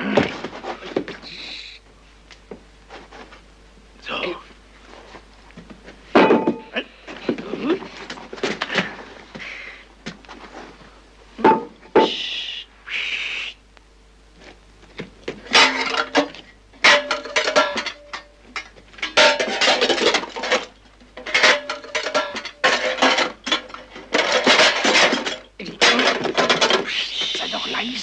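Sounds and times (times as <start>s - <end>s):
clattering crashes: 6.2s - 6.8s, 15.3s - 26.9s.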